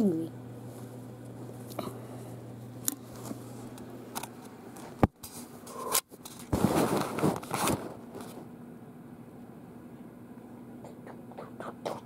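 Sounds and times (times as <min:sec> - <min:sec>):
fabric rustling and scraping: 0:06.3 - 0:08.5.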